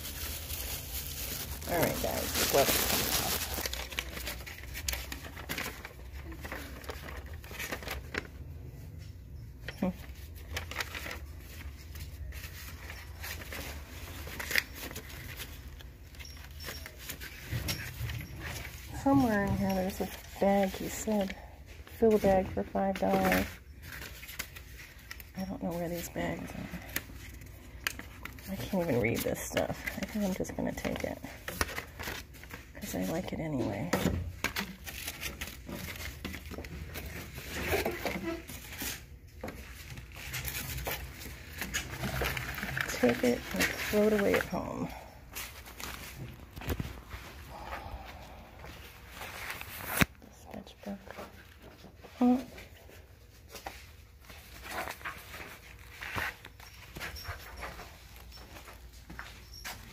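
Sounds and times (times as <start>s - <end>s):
sharp paper crackle: 0.0s - 8.5s, 9.8s - 32.8s, 34.4s - 44.6s
paper rustling and crinkling: 0.0s - 59.9s.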